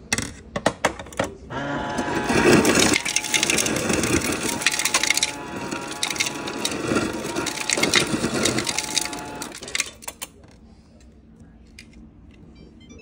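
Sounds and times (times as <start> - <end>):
ice clattering into plastic jar: 2.0 - 10.2.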